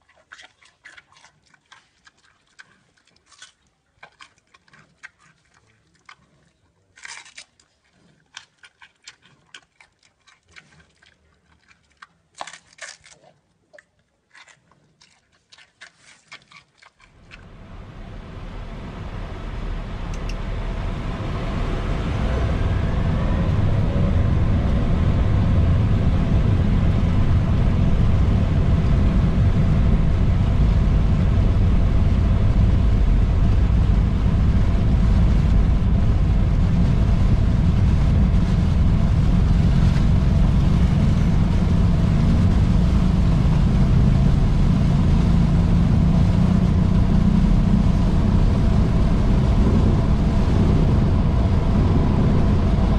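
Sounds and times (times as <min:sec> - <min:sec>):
jet engines spooling up: 0:17.4 - 0:52.9.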